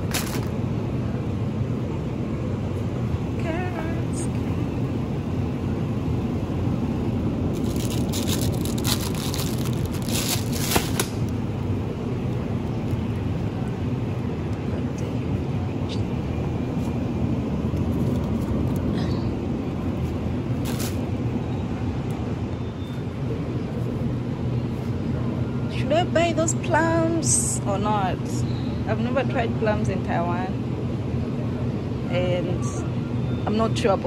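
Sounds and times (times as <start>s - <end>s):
refrigerator hum: 0.0s - 34.0s
rustles and clicks: 7.5s - 11.2s.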